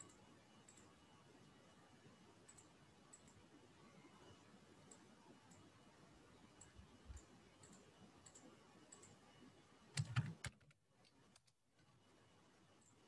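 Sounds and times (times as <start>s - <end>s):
computer keyboard and mouse clicks: 0.0s - 0.9s, 2.4s - 3.4s, 6.6s - 9.2s, 9.9s - 11.9s.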